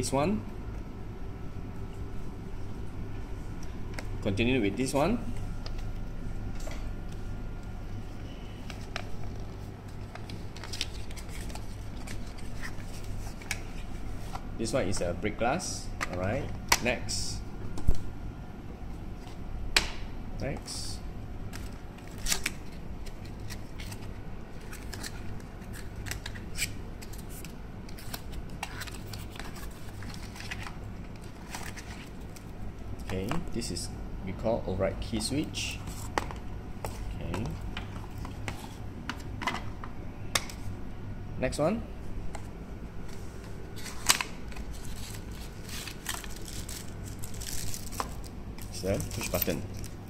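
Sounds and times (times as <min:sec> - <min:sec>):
card and paper rustling: 0:08.5 - 0:15.0, 0:21.5 - 0:33.3, 0:42.3 - 0:50.0.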